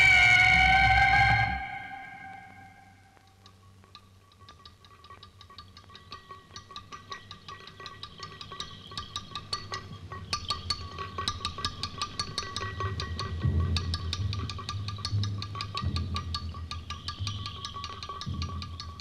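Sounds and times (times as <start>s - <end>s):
faint steady high tone: 0.0s - 3.2s.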